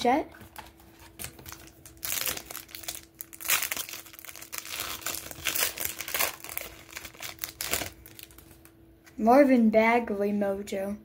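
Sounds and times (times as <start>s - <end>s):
foil wrapper crinkling and tearing: 0.9s - 8.7s.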